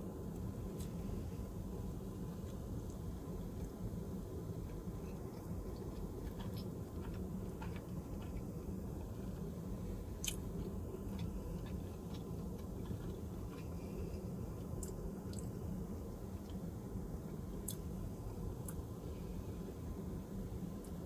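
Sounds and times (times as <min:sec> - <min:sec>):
steady low hum: 0:00.0 - 0:21.0
person chewing food: 0:02.4 - 0:15.6, 0:17.5 - 0:18.9.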